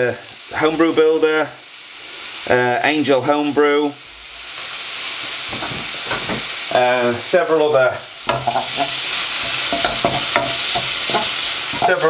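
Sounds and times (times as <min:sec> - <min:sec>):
meat sizzling in oil: 0:00.0 - 0:12.0
spatula stirring in pan: 0:08.2 - 0:12.0.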